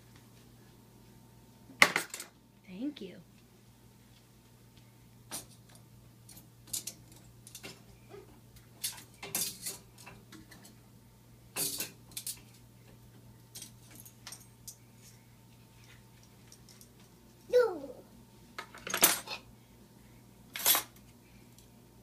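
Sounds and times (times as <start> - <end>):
dishes clinking on wire racks: 6.7 - 10.8, 11.5 - 12.5.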